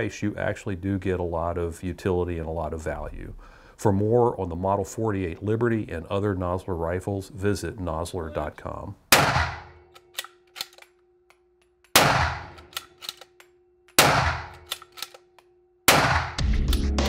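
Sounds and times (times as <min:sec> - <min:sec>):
rifle shots echoing: 0:09.1 - 0:10.3, 0:11.9 - 0:13.2, 0:14.0 - 0:15.2, 0:15.9 - 0:16.4
rifle bolt clicks: 0:09.8 - 0:15.5
loud music: 0:16.3 - 0:17.0.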